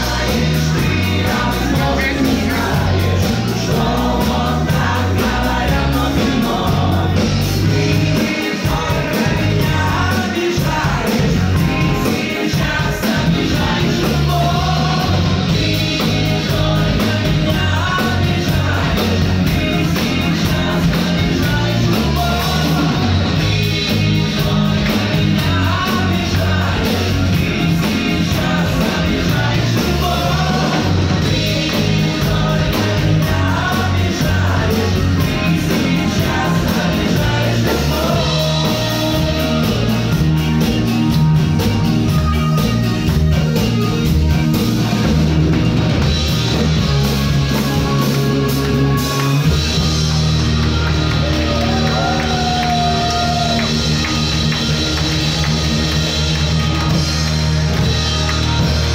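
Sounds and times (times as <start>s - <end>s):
man singing: 0.0s - 40.4s
live rock band playing: 0.0s - 58.9s.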